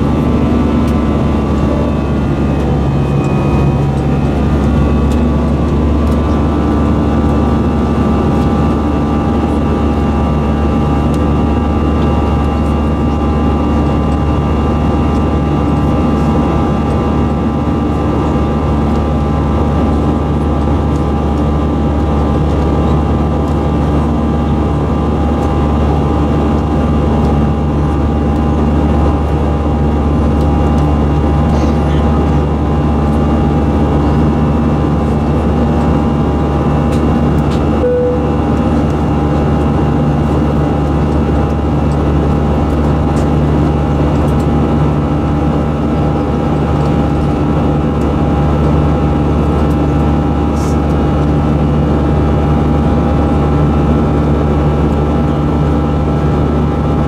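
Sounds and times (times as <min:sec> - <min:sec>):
steady whining tones: 0:00.0 - 0:16.4, 0:32.9 - 0:41.6
jet engines droning: 0:00.0 - 0:57.0
short cabin tone: 0:00.6 - 0:05.6, 0:37.7 - 0:39.2.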